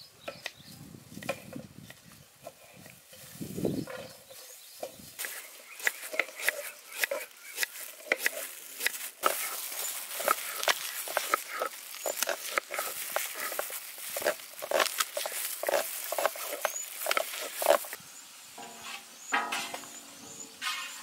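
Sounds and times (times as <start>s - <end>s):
knife slicing onions on board: 5.2s - 9.6s.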